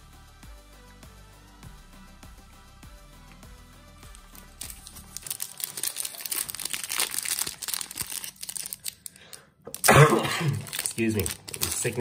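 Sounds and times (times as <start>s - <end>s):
wrapper crinkling and tearing: 4.1s - 12.0s.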